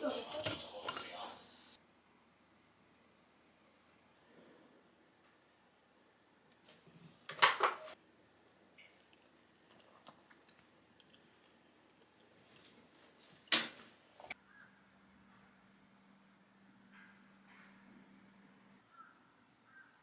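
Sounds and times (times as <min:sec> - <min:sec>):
wet squishes of egg: 0:08.8 - 0:13.2.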